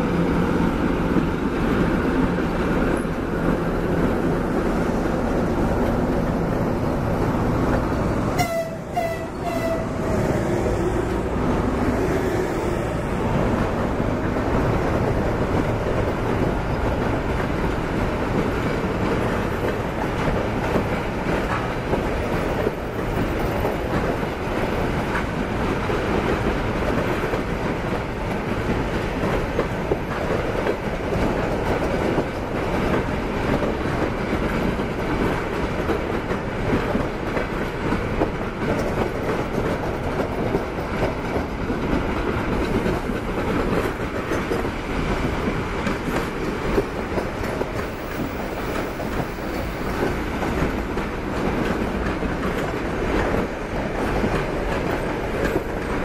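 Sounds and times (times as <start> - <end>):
train wheels rumbling on rail: 0.0 - 56.0
wheels clacking over rail joints: 13.4 - 56.0.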